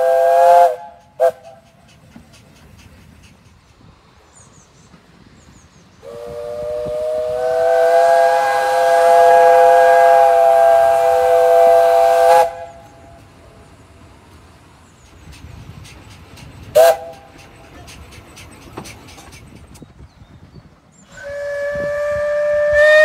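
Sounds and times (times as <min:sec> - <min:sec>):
steam locomotive whistle: 0:00.0 - 0:01.8, 0:06.0 - 0:13.2, 0:16.7 - 0:17.4, 0:21.0 - 0:23.0
steam hiss: 0:00.0 - 0:23.0.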